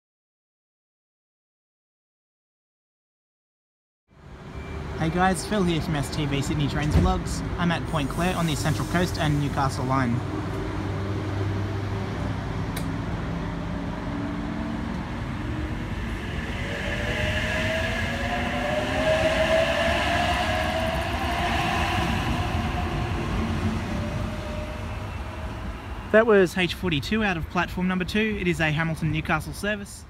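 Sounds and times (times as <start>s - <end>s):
train wheels rumbling on rail: 4.5s - 28.2s
electric train motor whine: 13.9s - 26.2s.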